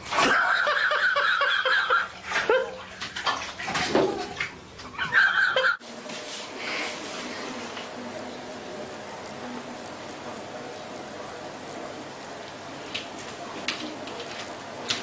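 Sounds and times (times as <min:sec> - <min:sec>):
bathwater splashing: 0:00.0 - 0:08.0.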